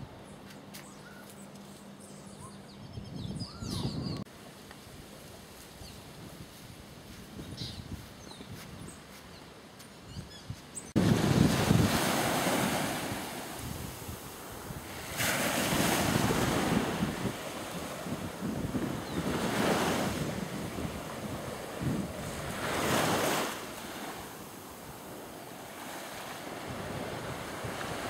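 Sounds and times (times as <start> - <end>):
wind buffeting microphone: 2.8 - 4.2, 5.8 - 9.1, 10.1 - 23.4
waves breaking on sand: 11.0 - 28.0.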